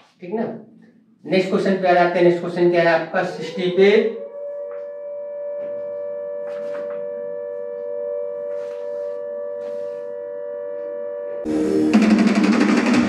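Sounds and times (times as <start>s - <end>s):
steady held two-pitch tone: 3.1s - 11.8s.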